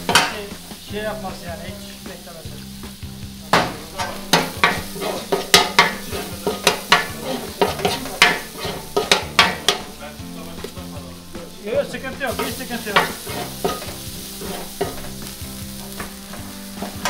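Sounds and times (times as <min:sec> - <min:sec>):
meat sizzling in oil: 0:00.0 - 0:17.0
metal spatula scraping a steel pan: 0:03.5 - 0:10.0, 0:12.3 - 0:17.0.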